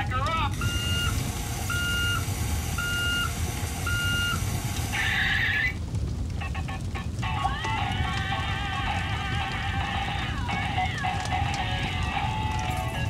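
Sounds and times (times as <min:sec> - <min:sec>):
low rumble: 0:00.0 - 0:13.0
electronic reversing beeps: 0:00.6 - 0:05.1.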